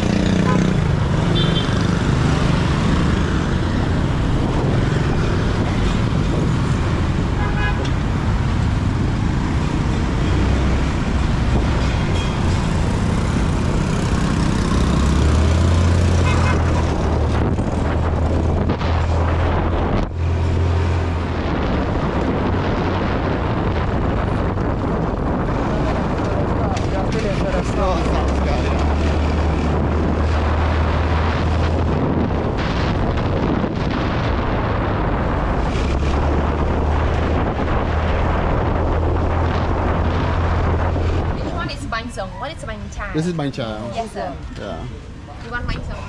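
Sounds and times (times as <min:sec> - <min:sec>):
road traffic rushing: 0:00.0 - 0:46.0
car horn toots: 0:16.2 - 0:16.8.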